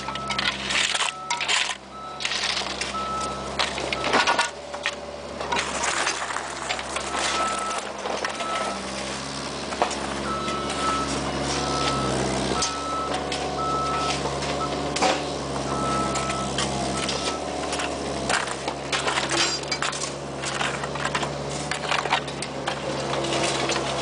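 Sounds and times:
diesel heavy equipment running: 0.0s - 24.0s
rakes and shovels scraping gravel: 0.0s - 24.0s
backup alarm beeping: 10.2s - 14.8s.

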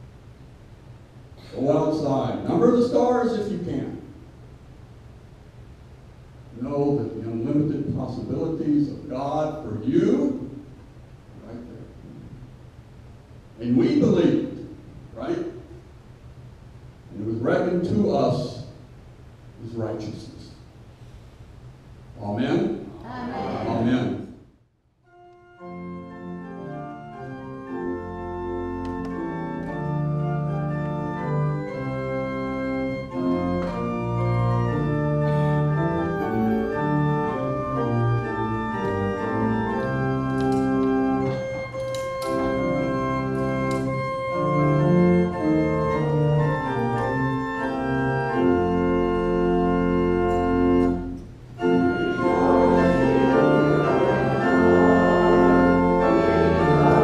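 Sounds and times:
church organ chords: 0.0s - 18.9s, 25.0s - 57.0s.

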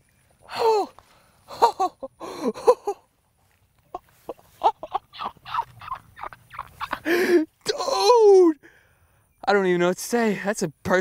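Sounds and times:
man exclaiming breathlessly: 0.5s - 1.0s, 7.0s - 8.9s
man laughing in short bursts: 1.5s - 3.1s, 3.9s - 8.4s.

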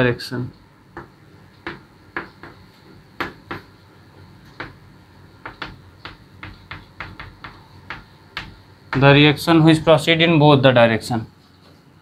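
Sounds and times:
chalk tapping and scratching on blackboard: 1.0s - 3.7s, 4.5s - 4.8s, 5.4s - 9.2s.

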